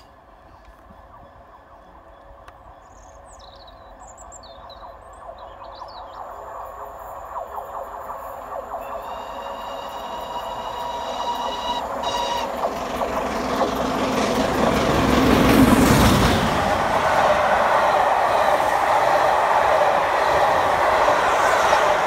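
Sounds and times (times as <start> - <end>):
birds chirping: 0.0 - 15.4
train rail hum and rumble: 0.0 - 22.0.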